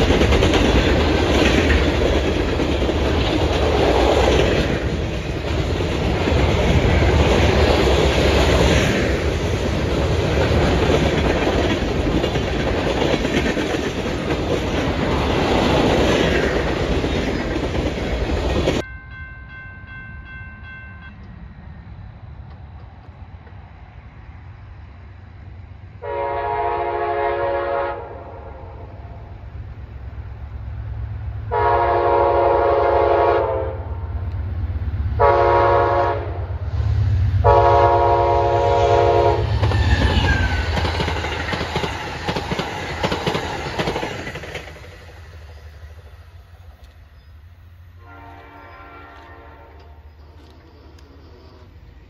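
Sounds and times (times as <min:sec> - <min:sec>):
wheels clacking over rail joints: 0:00.0 - 0:18.8, 0:39.5 - 0:47.3
train rumbling: 0:00.0 - 0:52.0
locomotive air horn: 0:26.0 - 0:29.0, 0:31.5 - 0:34.0, 0:35.2 - 0:36.5, 0:37.4 - 0:39.6, 0:48.0 - 0:50.5.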